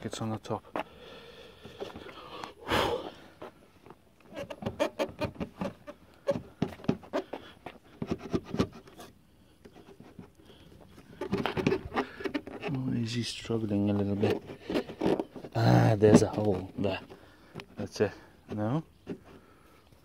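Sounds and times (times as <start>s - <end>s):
plastic knocking and clicking: 11.2s - 12.7s.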